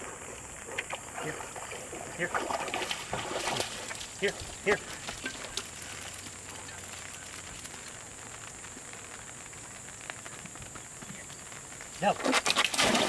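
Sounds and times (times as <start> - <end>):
outdoor background hiss: 0.0 - 13.0.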